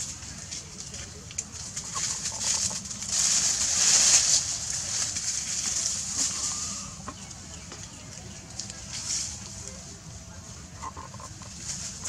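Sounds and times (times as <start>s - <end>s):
dry leaves rustling: 0.0s - 12.0s.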